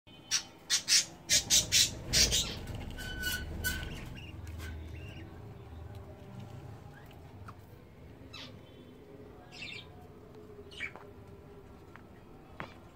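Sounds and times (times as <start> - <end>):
budgerigars squawking: 0.3 - 2.7.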